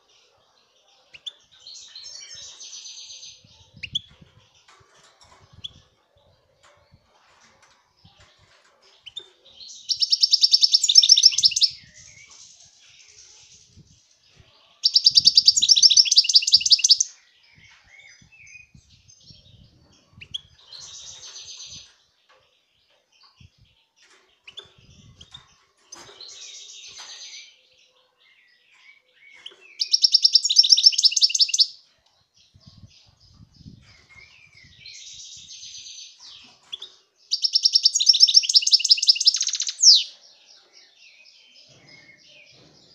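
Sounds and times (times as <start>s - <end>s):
goldfinch trilling song: 9.0s - 12.3s, 14.9s - 17.1s, 29.4s - 31.8s, 36.8s - 40.1s
bird twittering: 9.9s - 11.8s, 14.9s - 17.1s, 37.4s - 40.1s.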